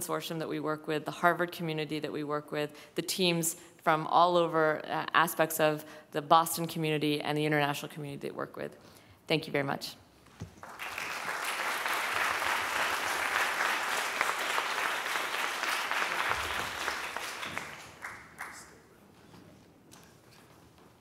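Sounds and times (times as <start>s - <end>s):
audience applauding: 10.6s - 18.8s.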